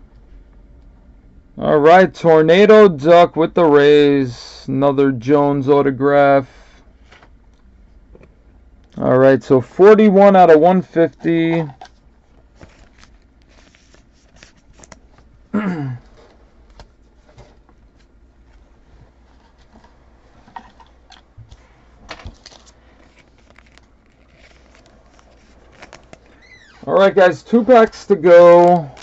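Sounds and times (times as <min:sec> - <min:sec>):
trading cards rustling and clicking: 0:10.8 - 0:15.3, 0:20.6 - 0:26.8, 0:27.5 - 0:29.0.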